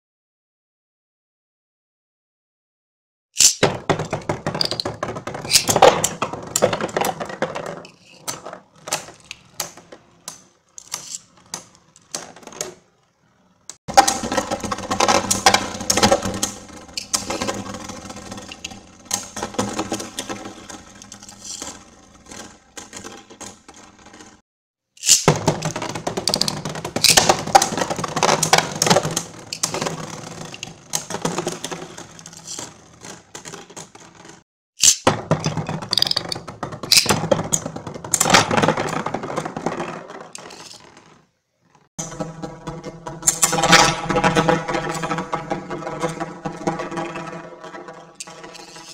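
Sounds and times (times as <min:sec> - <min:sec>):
spinning tops clashing in plastic stadium: 0:03.4 - 0:07.1, 0:25.0 - 0:35.1.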